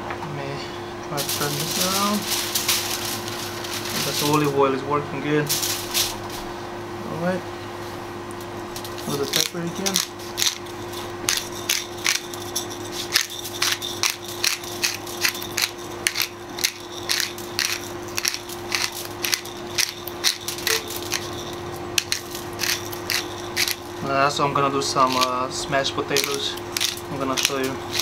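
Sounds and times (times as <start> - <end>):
low hum: 0.0 - 28.0
pepper grinder ratcheting clicks: 8.8 - 24.0, 25.1 - 25.4, 26.1 - 28.0.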